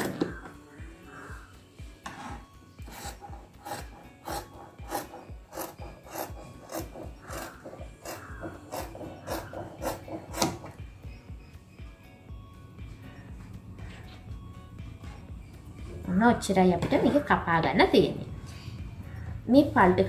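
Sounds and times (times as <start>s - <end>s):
faint background music: 0.0s - 20.0s.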